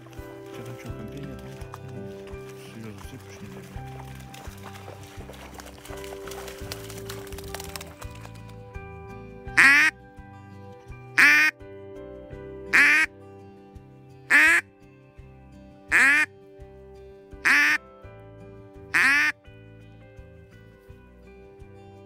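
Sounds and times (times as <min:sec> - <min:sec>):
background music: 0:00.0 - 0:22.0
duck call quacks: 0:09.6 - 0:09.9, 0:11.2 - 0:11.5, 0:12.8 - 0:13.1, 0:14.3 - 0:14.6, 0:15.9 - 0:16.3, 0:17.5 - 0:17.8, 0:19.0 - 0:19.3.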